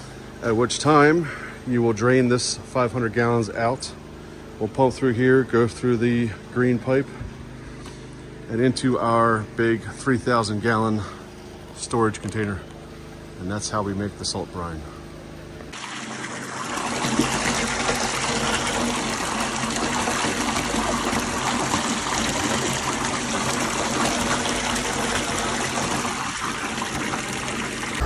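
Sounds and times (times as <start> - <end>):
water pouring into tank: 15.7 - 28.0.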